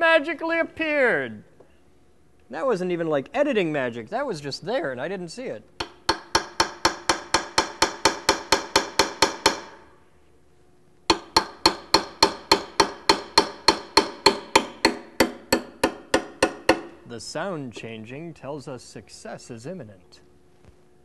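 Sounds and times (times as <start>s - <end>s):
hammer striking chisel on metal: 5.8s - 9.9s, 11.1s - 17.0s.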